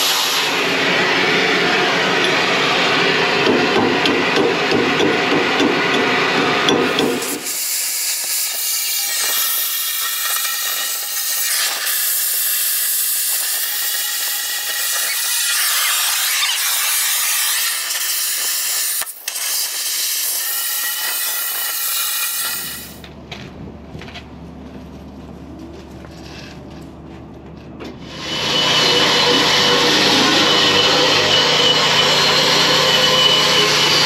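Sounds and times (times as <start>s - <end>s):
cutting torch hissing: 0.0s - 3.4s, 6.8s - 23.0s, 28.0s - 34.0s.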